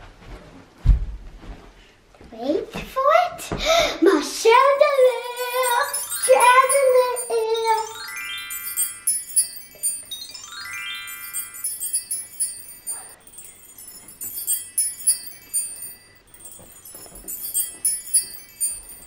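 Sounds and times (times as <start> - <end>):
wind chime twinkling: 4.5 - 19.0
rising chime glissandos: 4.6 - 19.0.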